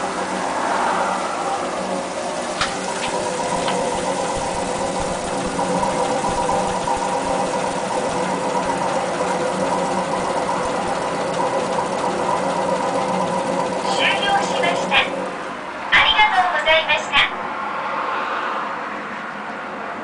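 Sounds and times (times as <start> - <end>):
milling machine motor hum: 0.0 - 15.9.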